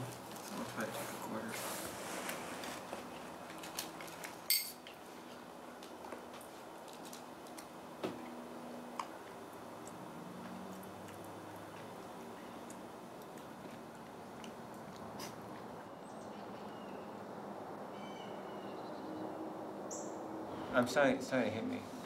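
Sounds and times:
sharp clink: 4.5s - 4.8s.

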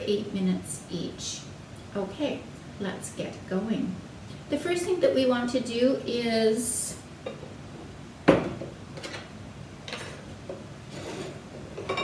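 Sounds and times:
bowls knocking on countertop: 8.3s - 8.8s
bowls tapping and clinking: 11.7s - 12.0s.

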